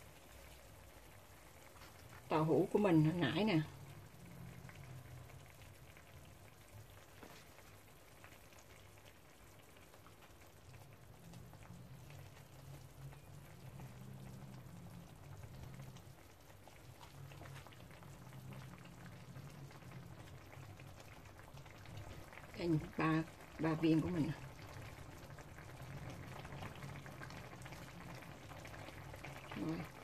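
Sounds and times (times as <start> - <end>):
sauce bubbling and popping: 0.0 - 30.0.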